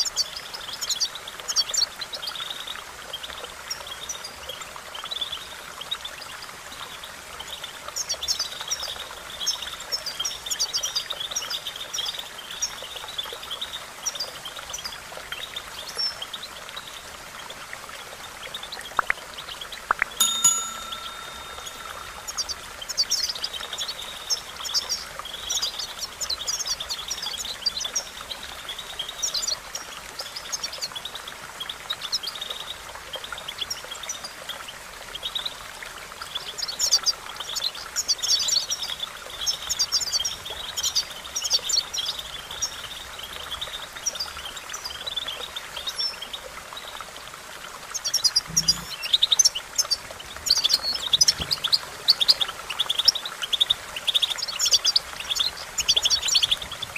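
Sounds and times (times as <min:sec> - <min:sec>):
goldfinch twittering chirps: 0:19.4 - 0:32.8, 0:47.9 - 0:56.9.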